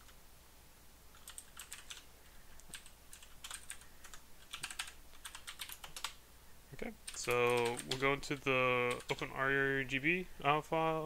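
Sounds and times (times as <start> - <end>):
computer keyboard typing: 1.1 - 6.2, 7.0 - 9.4.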